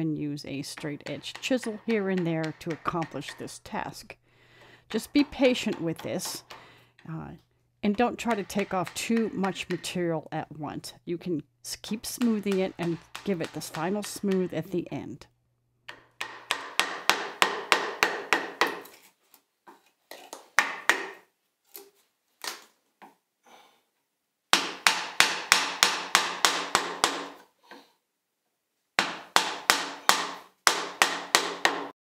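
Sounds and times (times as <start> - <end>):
wooden mallet tapping gouge: 0.6 - 7.2, 7.9 - 10.1, 11.7 - 14.9, 15.9 - 18.9, 20.6 - 21.2, 24.5 - 27.4, 29.0 - 31.9.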